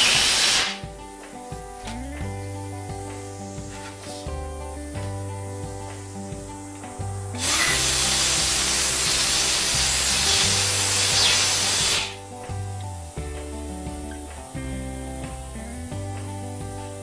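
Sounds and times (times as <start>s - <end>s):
compressed air hissing from blow gun: 0.0s - 0.8s, 7.3s - 12.3s
background music: 0.0s - 17.0s.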